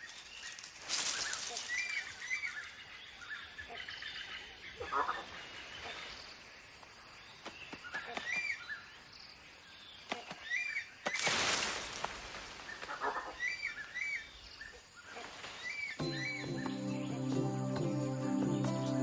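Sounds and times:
rustling rush: 0:00.0 - 0:02.4, 0:11.1 - 0:12.9
bird chirping call: 0:12.7 - 0:19.0.

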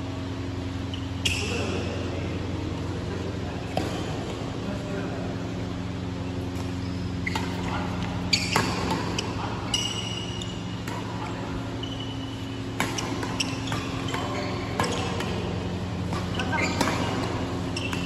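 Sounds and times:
steady low hum: 0:00.0 - 0:18.0
shoes squeaking on court: 0:00.6 - 0:02.0, 0:05.8 - 0:18.0
rackets striking shuttlecock: 0:06.4 - 0:18.0.

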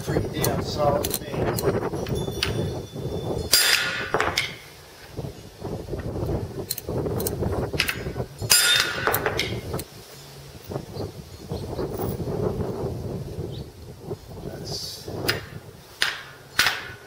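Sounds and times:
sledgehammer striking metal: 0:03.5 - 0:04.6, 0:07.8 - 0:09.6.

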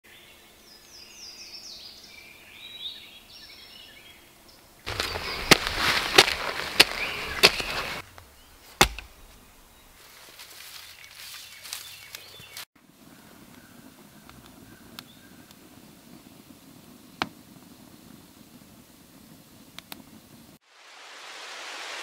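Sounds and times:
birds chirping: 0:00.1 - 0:18.5
dull thud: 0:04.9 - 0:08.0, 0:08.8 - 0:09.4
shovel digging into soil: 0:04.9 - 0:08.0.

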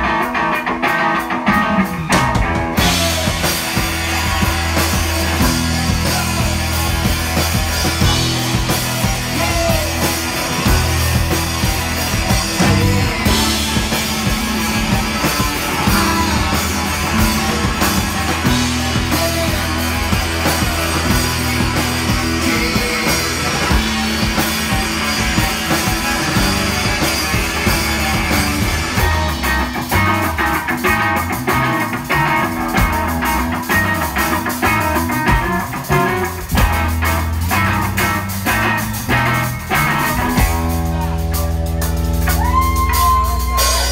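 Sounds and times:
rock band playing live: 0:00.0 - 0:43.9.

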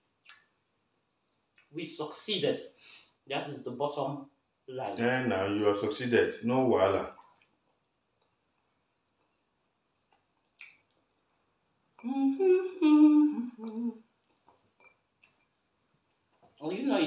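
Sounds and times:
person humming: 0:12.0 - 0:14.0.

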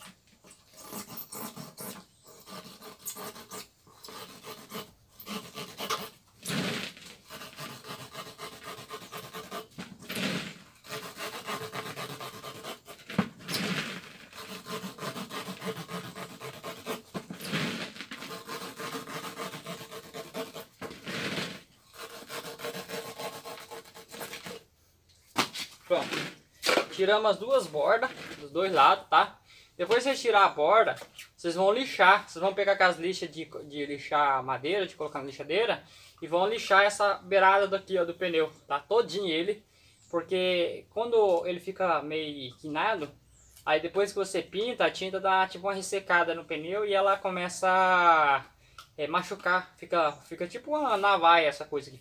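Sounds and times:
knife sawing through rubber tyre: 0:00.0 - 0:24.7.

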